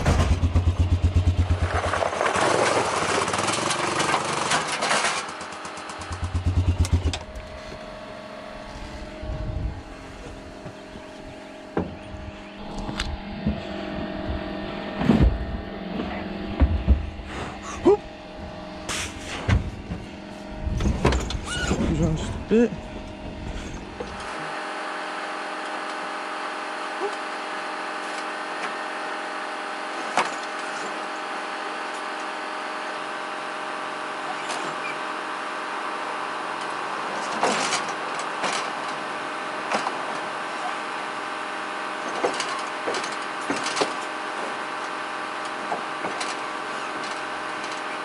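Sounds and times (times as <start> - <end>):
steady hum: 5.4 - 26.3
metal knocks and clunks: 16.5 - 17.3.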